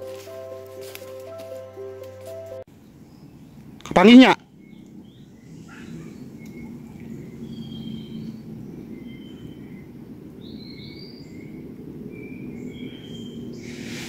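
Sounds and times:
birds whistling: 4.6 - 14.0.

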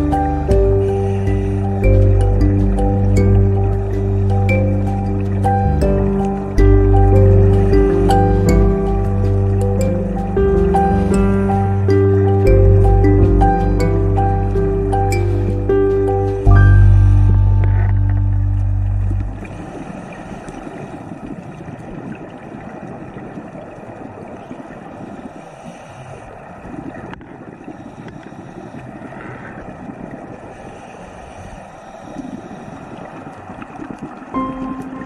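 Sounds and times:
background music: 0.0 - 19.6, 34.4 - 35.0
muffled underwater rushing hiss: 0.0 - 21.6, 24.9 - 35.0.

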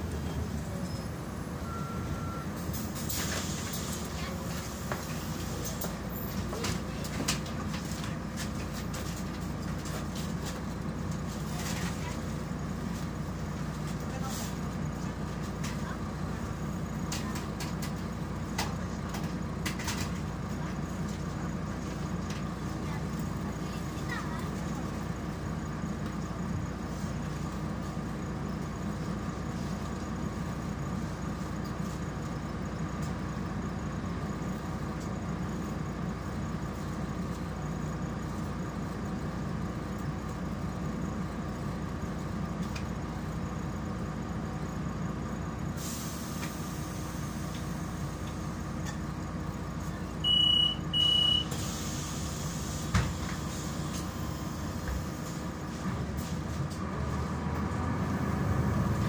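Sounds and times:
bus idling: 0.0 - 59.0
short high beeps: 1.6 - 2.4, 50.2 - 51.5
bus doors knocking shut: 52.8 - 53.5.

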